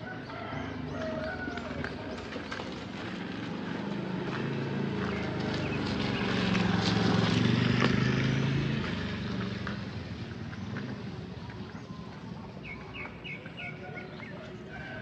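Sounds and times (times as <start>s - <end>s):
passing vehicle engine: 0.0s - 13.6s.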